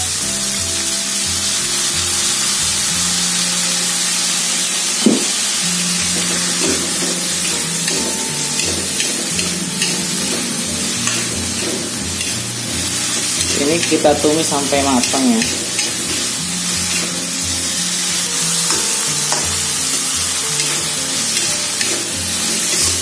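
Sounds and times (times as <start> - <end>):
food sizzling in a wok: 0.0 - 23.0
metal spatula knock: 6.1 - 12.4, 15.0 - 16.2, 18.7 - 19.6.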